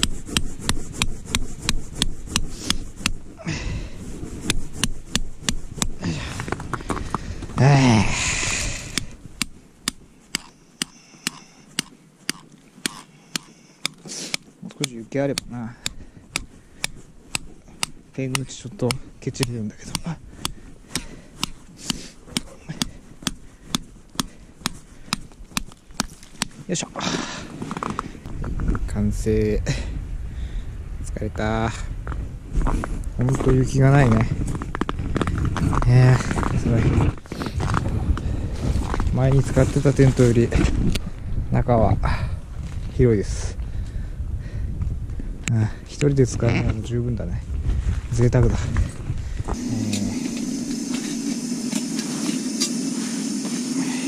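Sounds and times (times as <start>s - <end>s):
hammer striking metal peg: 0.0s - 3.2s, 4.5s - 6.0s, 8.9s - 26.6s.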